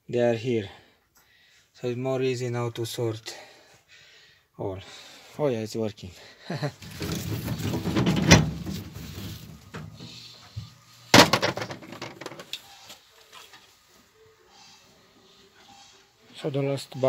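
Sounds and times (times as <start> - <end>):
potatoes clattering on wire mesh: 6.8 - 10.0, 11.1 - 12.6.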